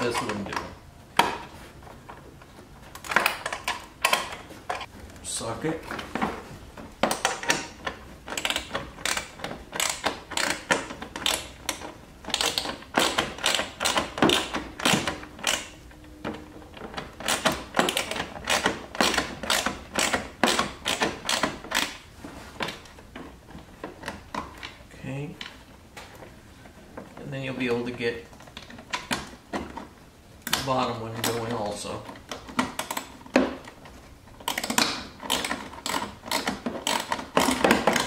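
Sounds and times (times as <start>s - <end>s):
hand ratchet clicking: 7.1s - 15.8s, 17.0s - 22.0s, 34.4s - 38.0s.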